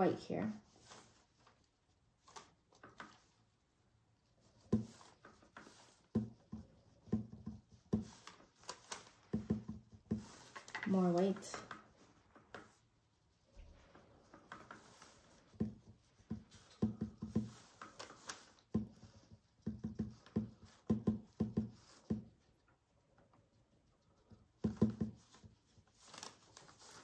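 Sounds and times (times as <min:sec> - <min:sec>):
paintbrush tapping on canvas: 0:04.5 - 0:08.4, 0:09.1 - 0:10.9, 0:14.3 - 0:18.0, 0:18.6 - 0:22.5, 0:24.2 - 0:25.6.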